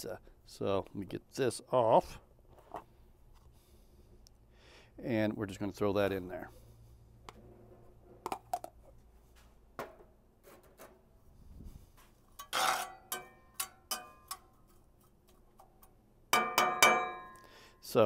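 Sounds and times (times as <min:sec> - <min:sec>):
metal spatula scraping skillet: 0:12.4 - 0:14.4
metal clanking on iron pan: 0:12.4 - 0:14.5, 0:16.3 - 0:17.4.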